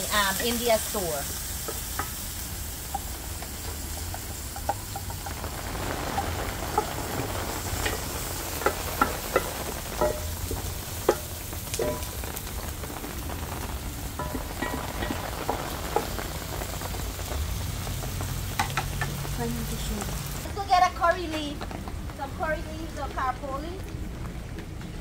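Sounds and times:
onions sizzling in oil: 0.0s - 25.0s
wooden spoon knocking pot: 8.6s - 12.2s.

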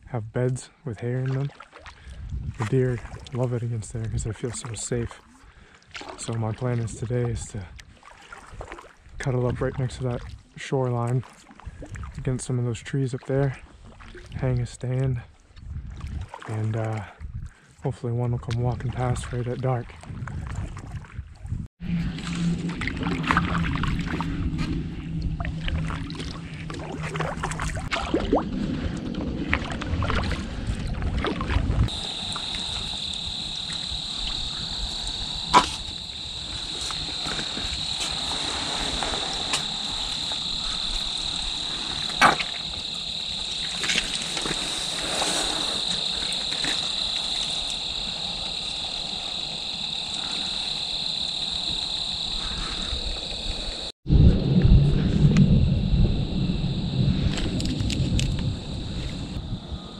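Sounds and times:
low rumbling: 21.6s - 59.9s
crickets chirring: 31.9s - 59.9s.

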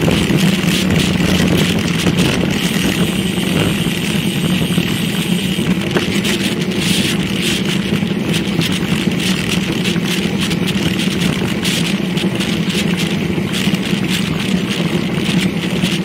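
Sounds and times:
bike knocks and rattles: 0.0s - 16.0s
bike tyres on asphalt: 0.0s - 16.0s
wind over microphone: 0.0s - 16.0s.

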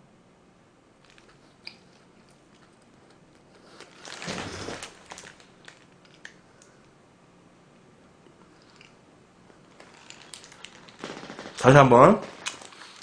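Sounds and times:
person chewing: 8.4s - 9.0s.

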